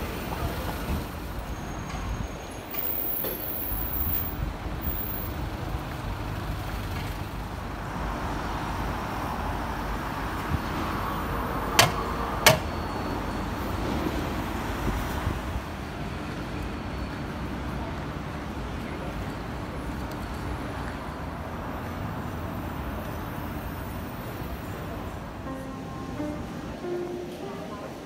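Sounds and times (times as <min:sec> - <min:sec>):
sharp knocks: 0:11.8 - 0:12.7.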